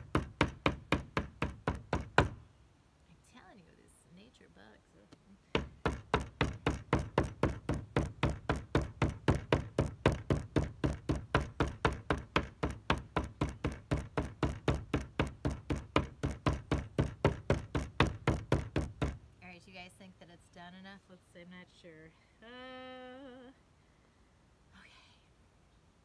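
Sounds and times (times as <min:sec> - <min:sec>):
rubber mallet pounding on table: 0:00.0 - 0:02.4, 0:05.6 - 0:19.2.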